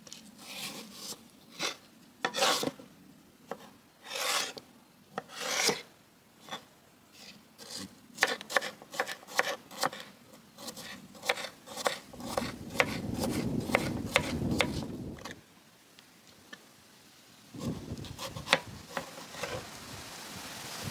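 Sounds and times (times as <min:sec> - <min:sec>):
knife chopping on wooden board: 0:08.2 - 0:10.0, 0:10.6 - 0:15.3.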